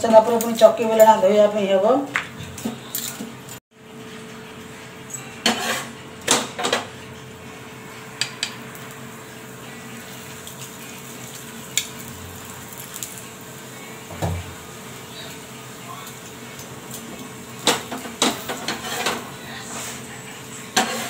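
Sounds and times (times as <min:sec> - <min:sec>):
steel utensils clattering on pans: 0:05.1 - 0:07.0, 0:17.6 - 0:19.4, 0:20.7 - 0:21.0.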